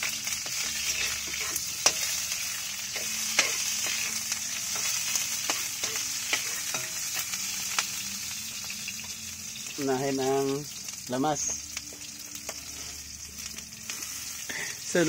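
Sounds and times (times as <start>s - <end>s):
food sizzling in hot oil: 0.0s - 15.0s
metal spoon scraping a wok: 0.2s - 7.3s, 12.4s - 13.2s.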